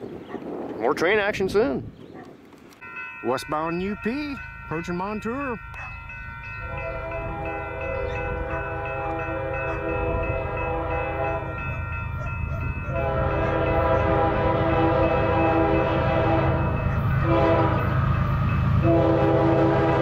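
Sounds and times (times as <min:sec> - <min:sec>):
train rumble: 0:02.1 - 0:20.0
locomotive air horn blasts: 0:06.6 - 0:11.8, 0:12.9 - 0:20.0.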